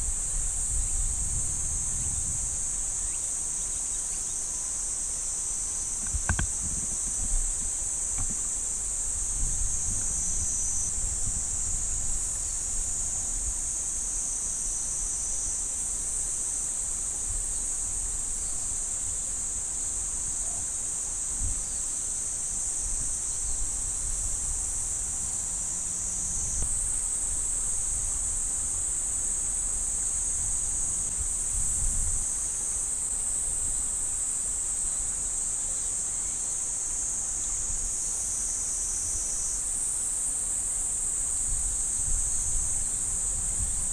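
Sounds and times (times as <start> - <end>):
low wind rumble: 0.0 - 2.8
insect chorus drone: 0.0 - 43.9.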